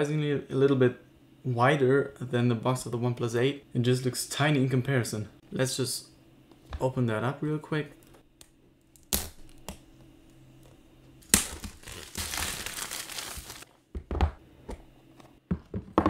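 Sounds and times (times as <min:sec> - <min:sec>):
plastic wrap snapping: 0:11.2 - 0:13.6
plastic crinkling and tearing: 0:11.2 - 0:13.7
box knocking on table: 0:14.0 - 0:14.4, 0:15.5 - 0:16.0.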